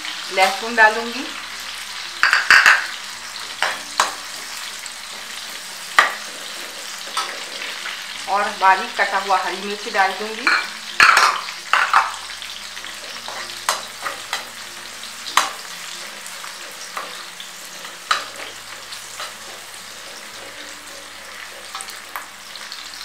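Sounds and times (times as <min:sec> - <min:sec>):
vegetables sizzling in hot oil: 0:00.0 - 0:23.0
spatula scraping a metal pan: 0:03.6 - 0:08.2, 0:10.4 - 0:14.6, 0:15.2 - 0:22.7.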